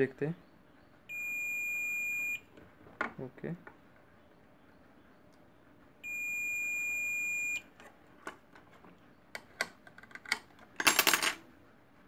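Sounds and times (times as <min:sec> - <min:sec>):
multimeter continuity beep: 0:01.1 - 0:02.5, 0:06.0 - 0:07.7.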